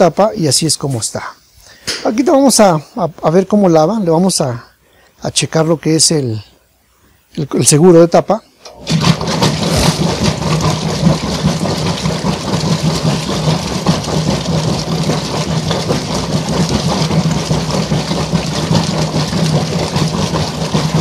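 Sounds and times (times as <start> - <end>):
washing machine motor humming: 8.6 - 21.0
agitator sloshing water: 8.7 - 21.0.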